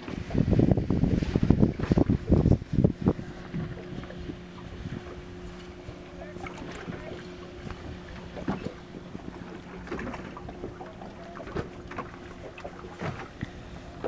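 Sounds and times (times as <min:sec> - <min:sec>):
wind noise on microphone: 0:00.0 - 0:08.7
boat motor humming: 0:00.0 - 0:14.0
water lapping against hull: 0:00.0 - 0:14.0.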